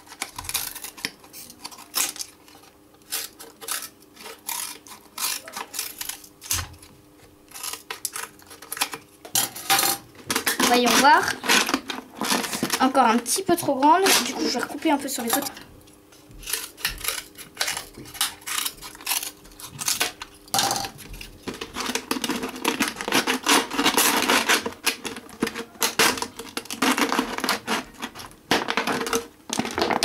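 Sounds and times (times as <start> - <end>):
plastic bottle crackling: 21.5 - 30.0.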